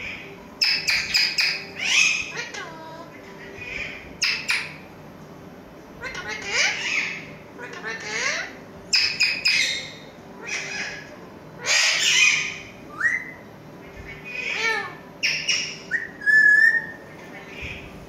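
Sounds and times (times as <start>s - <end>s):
parrots squawking and chirping: 0.0s - 4.9s, 6.0s - 18.0s
parrot whistle: 8.9s - 11.0s, 11.6s - 13.4s, 14.5s - 17.0s.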